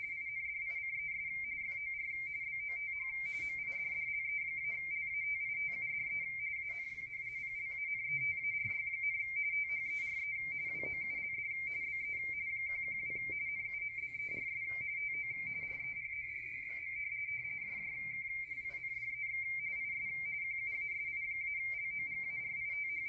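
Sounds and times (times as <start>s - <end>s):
faint radio band noise: 0.0s - 23.0s
warbling radio data tones: 0.0s - 23.0s.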